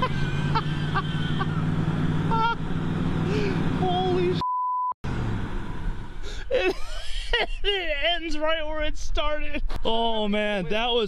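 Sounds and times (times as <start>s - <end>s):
truck engine fast idle: 0.0s - 4.3s
censor bleep: 4.4s - 5.0s.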